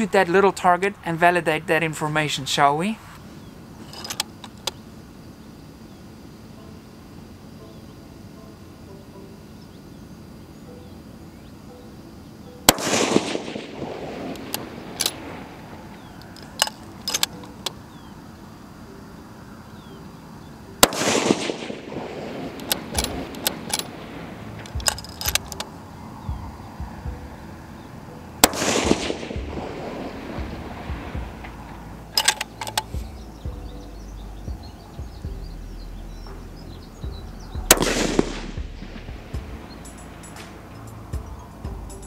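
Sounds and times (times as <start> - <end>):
rifle bolt clicks: 3.8 - 4.8, 15.9 - 17.8, 22.6 - 23.9, 24.6 - 25.7, 32.2 - 33.0
rifle shots with echo: 12.7 - 16.0, 20.8 - 25.6, 28.4 - 33.0, 37.7 - 39.1.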